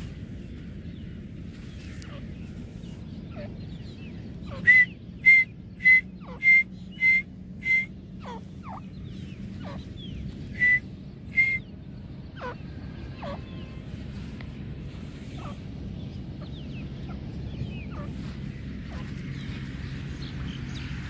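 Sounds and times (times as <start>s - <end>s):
francolin whistled calls: 4.5s - 8.8s, 10.5s - 11.8s.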